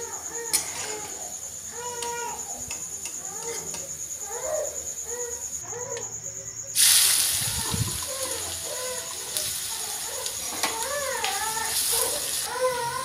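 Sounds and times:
potato sizzling in hot oil: 6.8s - 13.0s.

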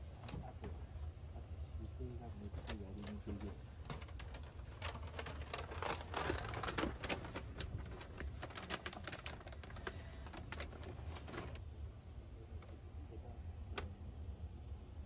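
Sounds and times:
train carriage low hum: 0.0s - 15.0s
light clicks and rattles: 2.4s - 11.6s.

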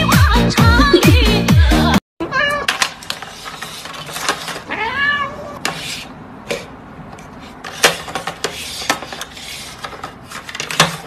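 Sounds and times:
cat meowing: 2.2s - 2.7s, 4.7s - 5.6s.

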